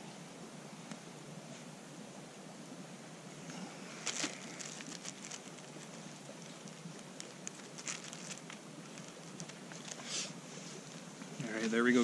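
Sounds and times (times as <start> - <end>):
campfire crackling: 3.4 - 12.0.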